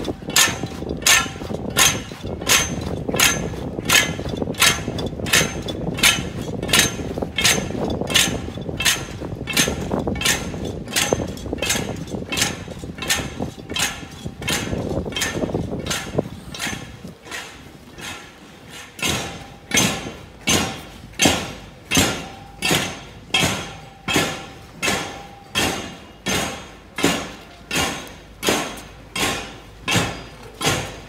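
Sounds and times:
sharp knocks: 0.0 - 31.0.

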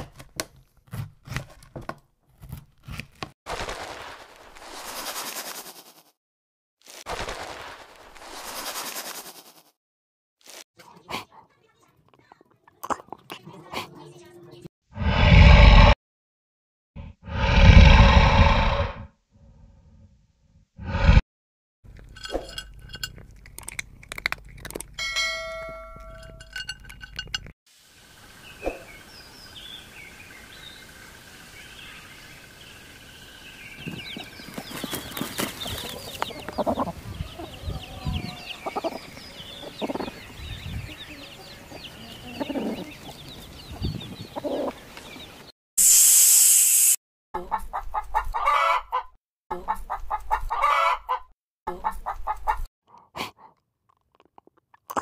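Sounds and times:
chicks peeping: 33.8 - 45.5
hen clucking: 35.6 - 40.4, 41.1 - 43.2, 44.3 - 44.8, 47.4 - 52.7.

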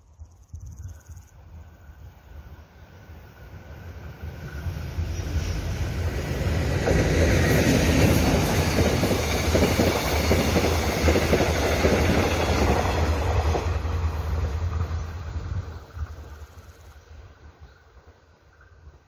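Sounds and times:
train wheels clattering on rails: 4.1 - 17.0.

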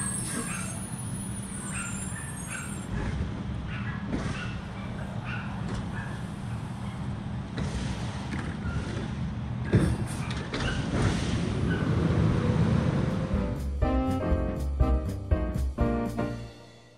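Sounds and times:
garbage truck engine rumble: 7.4 - 16.7
rising engine tone: 11.9 - 16.8.

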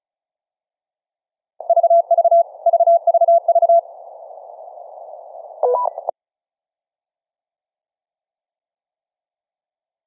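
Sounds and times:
radio hiss: 2.4 - 6.1.

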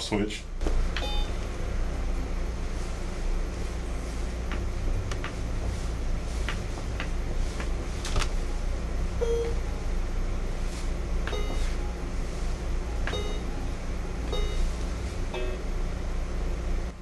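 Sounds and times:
steady low hum: 0.0 - 17.0
short electronic beeps: 1.0 - 1.4, 9.2 - 9.6.

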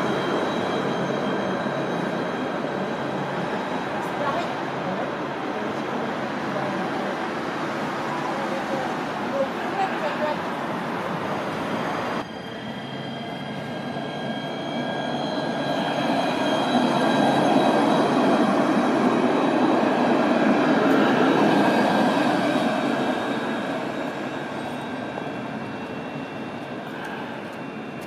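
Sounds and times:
electric tram passing: 0.0 - 28.0
high-pitched whine: 12.1 - 19.9, 20.9 - 28.0.

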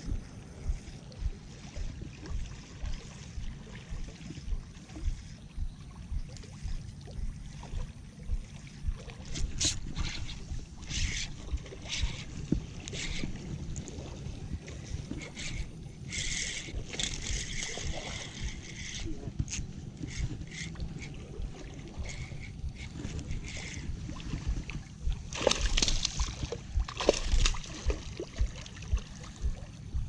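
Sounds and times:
wind buffeting microphone: 0.0 - 30.0
fish splashing at water surface: 25.3 - 29.4.

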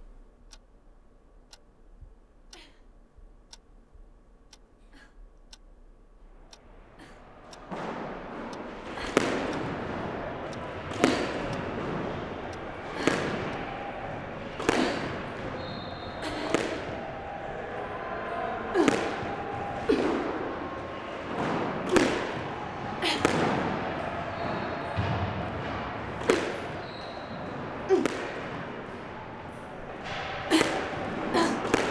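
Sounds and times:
squash ball hitting walls: 7.6 - 17.1, 18.6 - 31.9.

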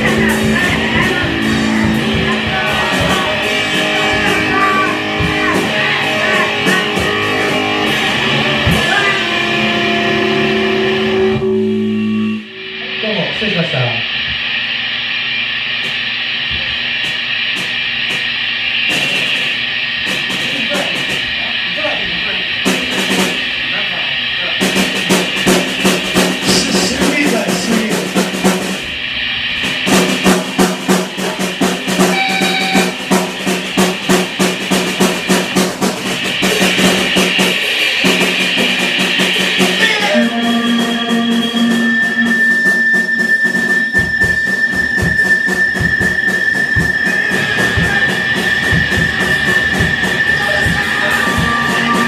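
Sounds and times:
held high tone: 0.0 - 14.1, 32.0 - 33.2, 39.4 - 52.0
amplified electric guitar: 0.0 - 14.7, 29.6 - 52.0
drum kit with cymbal crashes: 0.0 - 52.0.

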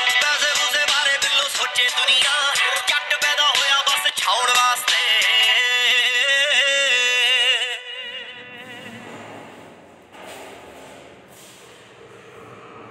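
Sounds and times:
person singing over music: 0.0 - 9.3.

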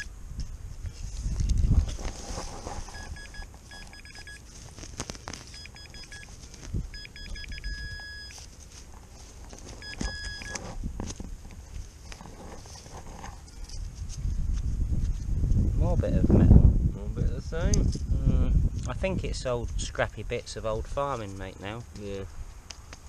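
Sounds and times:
rustle of handling or digging: 0.0 - 15.6, 20.9 - 23.0
metal detector beeping: 2.8 - 4.7, 5.4 - 8.5, 9.7 - 10.8.

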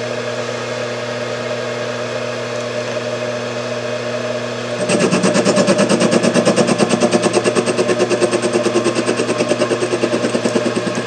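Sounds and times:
lathe motor and gear hum: 4.5 - 11.0
lathe tool chatter on metal: 4.8 - 11.0.

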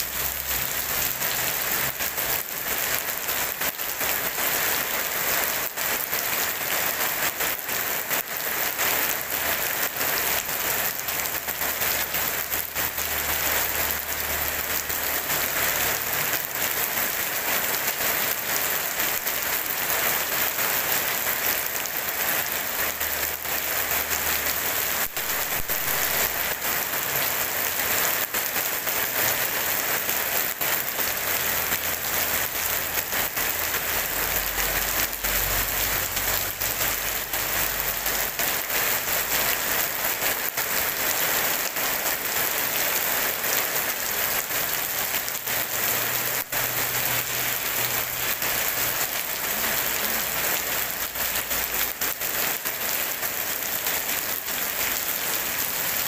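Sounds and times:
heavy rain on wet pavement: 0.0 - 56.0.

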